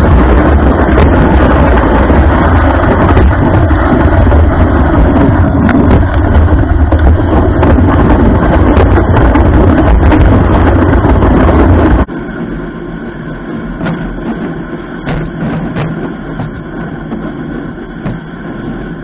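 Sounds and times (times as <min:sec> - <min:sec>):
snowmobile engine running: 0:00.0 - 0:19.0
wind buffeting microphone: 0:00.0 - 0:19.0.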